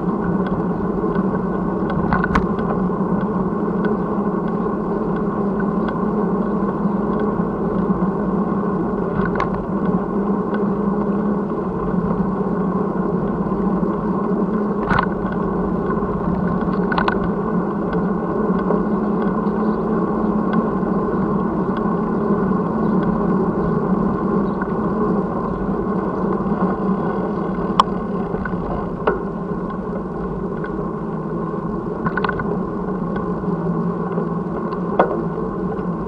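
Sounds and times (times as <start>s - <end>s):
road rumble: 0.0s - 36.0s
wind noise: 0.0s - 36.0s.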